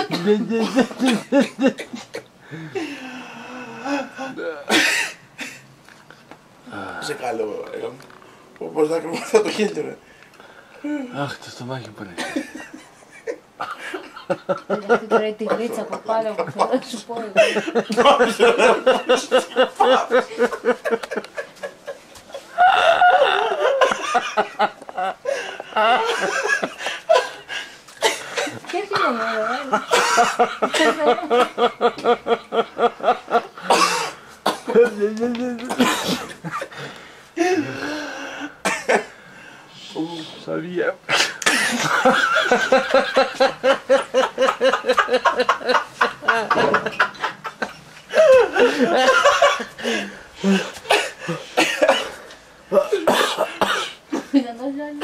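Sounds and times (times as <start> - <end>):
rhythmic laughter: 17.4 - 27.8, 41.5 - 53.3.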